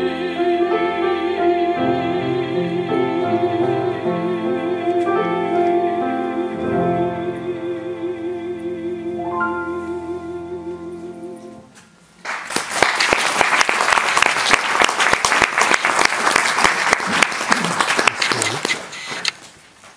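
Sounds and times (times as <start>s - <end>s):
piano chords: 0.0s - 12.2s
audience applause: 12.2s - 19.0s.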